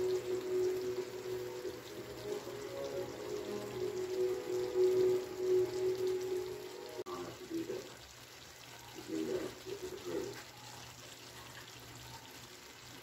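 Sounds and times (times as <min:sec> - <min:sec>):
background music: 0:00.0 - 0:07.1
stew bubbling in a pan: 0:00.0 - 0:13.0.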